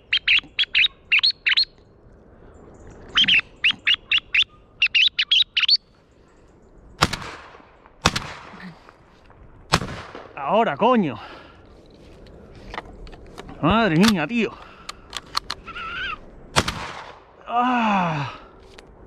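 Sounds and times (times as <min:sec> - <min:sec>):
high bird chirps: 0:00.0 - 0:01.8, 0:02.7 - 0:06.9
shotgun shots with echo: 0:07.0 - 0:08.6, 0:09.7 - 0:10.4, 0:16.5 - 0:17.3.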